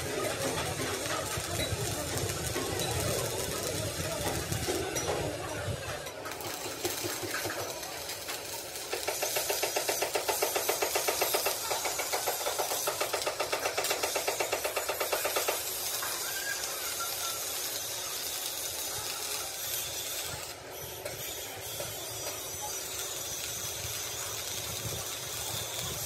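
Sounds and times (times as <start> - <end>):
steady hiss: 6.4 - 26.0
machine knocking rapidly: 8.8 - 15.8.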